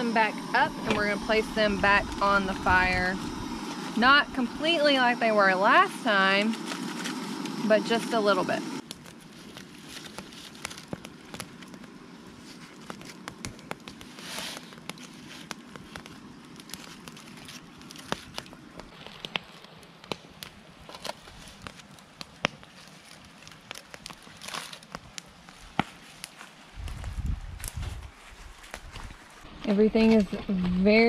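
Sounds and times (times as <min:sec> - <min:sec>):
campfire crackling and popping: 0:00.0 - 0:27.8
aluminium foil crinkling: 0:08.8 - 0:29.4.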